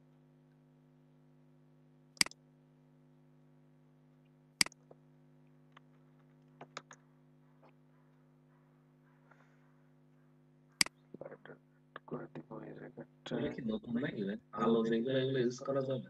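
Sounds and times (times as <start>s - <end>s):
steady low hum: 0.0s - 16.0s
mouse clicks: 2.2s - 2.4s, 4.6s - 4.9s.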